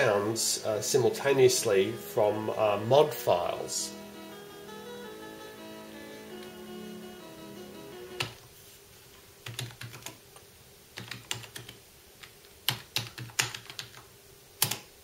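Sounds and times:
computer keyboard typing: 8.2 - 8.4, 9.4 - 10.2, 11.0 - 14.9.

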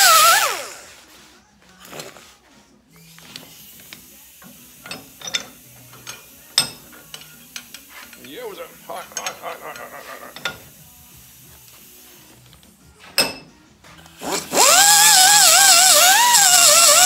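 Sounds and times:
hand tools clicking and knocking: 3.3 - 10.8, 13.1 - 13.5.

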